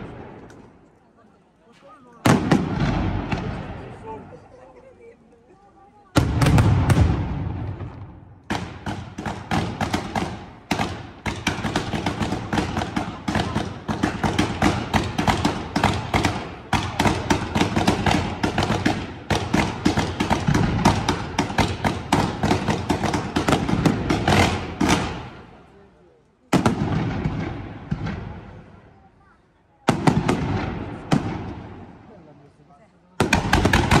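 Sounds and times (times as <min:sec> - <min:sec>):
fireworks bangs and cracks: 0:02.2 - 0:04.2, 0:06.1 - 0:25.6, 0:26.5 - 0:29.1, 0:29.8 - 0:32.1, 0:33.2 - 0:34.0.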